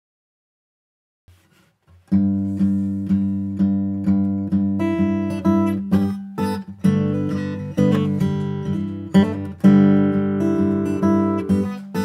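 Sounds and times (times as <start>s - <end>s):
acoustic guitar picked notes: 1.5s - 12.0s.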